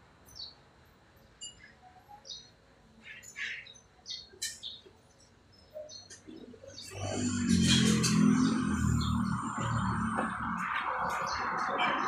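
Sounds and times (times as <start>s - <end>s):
small birds chirping: 0.2s - 0.7s, 1.3s - 12.0s.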